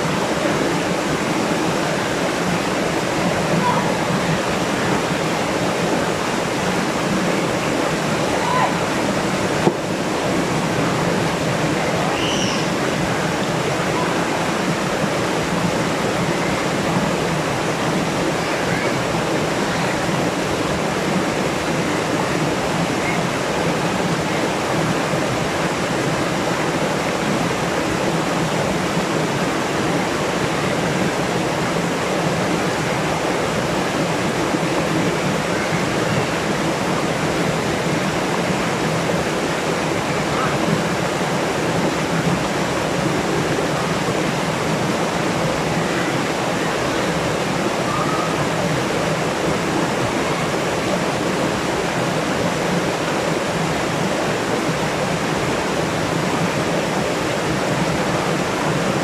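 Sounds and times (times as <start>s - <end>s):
waterfall rushing over boulders: 0.0s - 59.0s.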